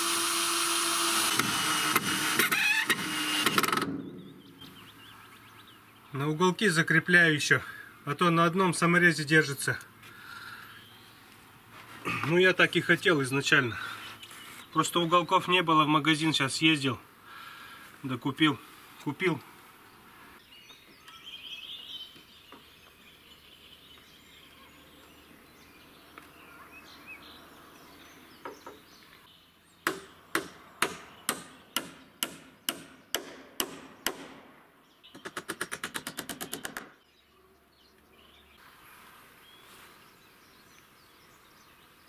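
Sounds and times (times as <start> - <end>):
hammer striking timber: 29.8 - 34.5.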